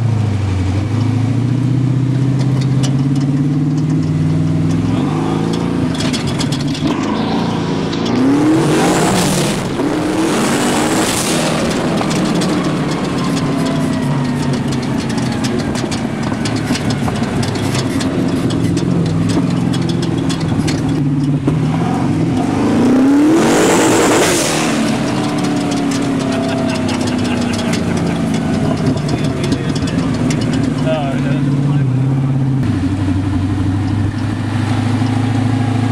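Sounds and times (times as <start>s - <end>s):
engine running hard: 0.0s - 35.9s.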